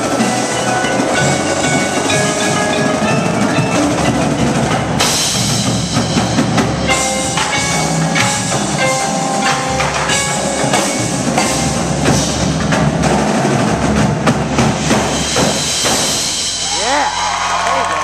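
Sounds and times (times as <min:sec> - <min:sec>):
marimbas ringing: 0:00.0 - 0:13.9
marching drums: 0:00.0 - 0:18.0.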